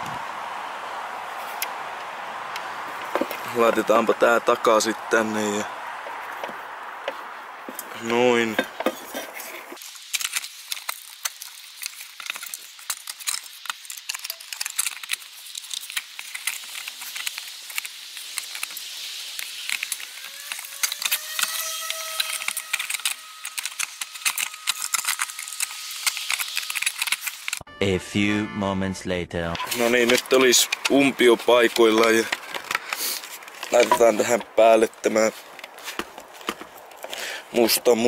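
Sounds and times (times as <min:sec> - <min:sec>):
steady hiss: 0:07.8 - 0:27.6, 0:29.6 - 0:36.5
plastic lamp parts clicking: 0:19.4 - 0:27.6, 0:31.8 - 0:34.1.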